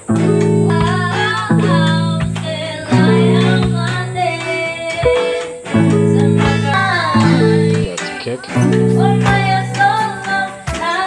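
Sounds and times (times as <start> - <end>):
song with guitar and singing: 0.0 - 11.0.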